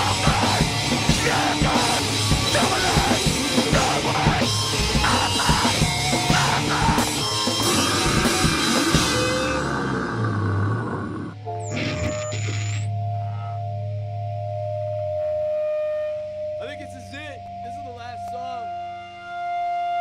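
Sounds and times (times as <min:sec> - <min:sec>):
distorted electric guitar: 0:00.0 - 0:13.5
bass guitar: 0:00.0 - 0:13.6.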